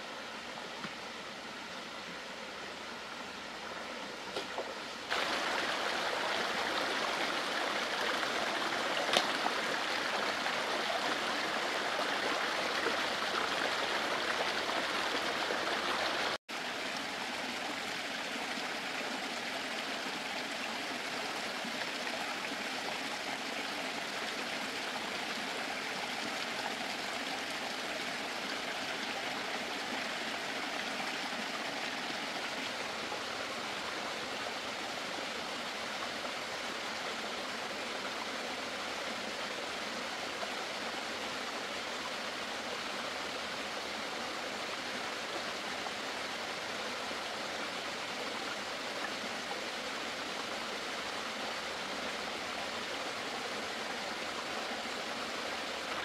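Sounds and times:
running water rushing: 0:00.0 - 0:56.0.

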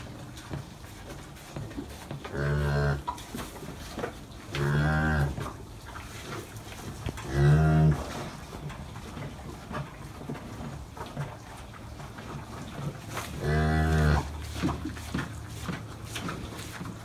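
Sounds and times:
cow mooing: 0:07.2 - 0:08.0, 0:13.4 - 0:14.3.

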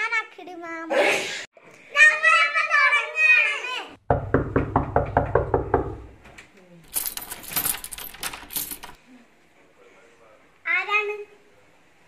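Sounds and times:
bright metallic jangling: 0:06.9 - 0:09.0.

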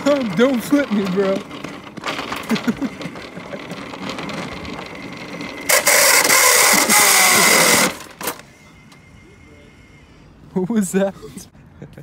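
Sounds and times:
shopping cart wheels rattling: 0:00.0 - 0:08.4
grinding scrape and squeal: 0:03.6 - 0:10.3.

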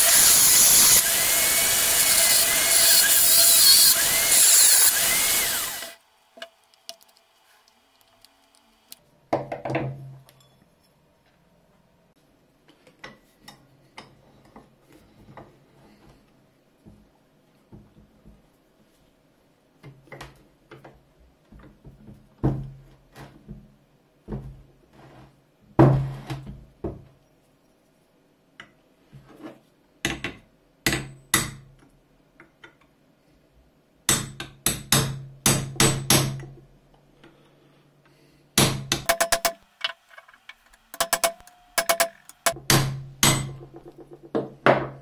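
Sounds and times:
hammer striking metal punch: 0:41.0 - 0:43.8.

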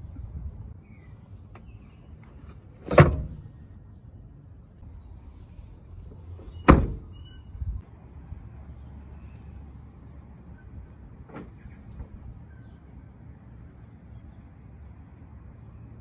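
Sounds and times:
steady low rumble: 0:00.0 - 0:02.2.

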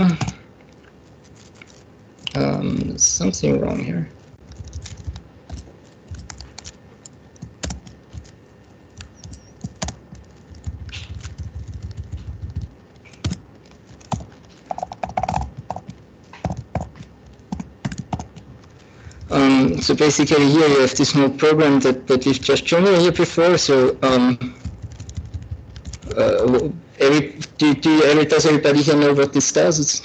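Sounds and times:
computer keyboard typing: 0:04.4 - 0:19.8, 0:22.2 - 0:26.6.

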